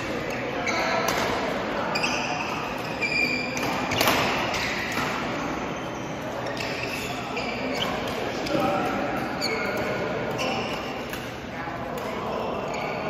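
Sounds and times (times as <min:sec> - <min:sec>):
rackets hitting shuttlecock: 0:00.0 - 0:01.6, 0:02.4 - 0:05.4
shoe squeaks on court floor: 0:00.3 - 0:01.1, 0:01.8 - 0:08.6, 0:09.3 - 0:11.0, 0:12.2 - 0:13.0.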